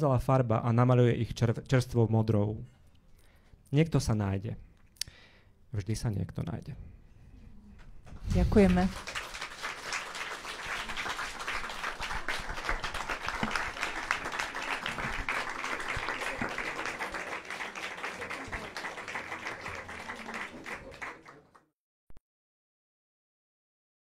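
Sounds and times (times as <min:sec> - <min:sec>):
audience applauding: 0:08.5 - 0:21.7.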